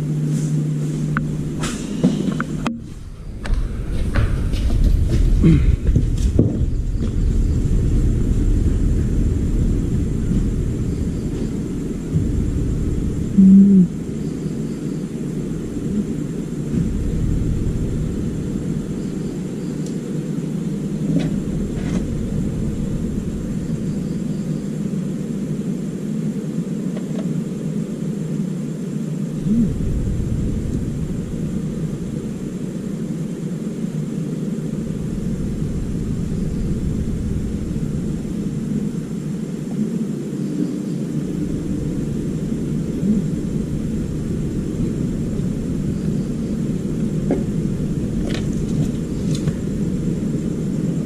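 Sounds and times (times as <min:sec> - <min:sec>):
low droning rumble: 0:00.0 - 0:51.0
faint clicks: 0:19.8 - 0:20.0.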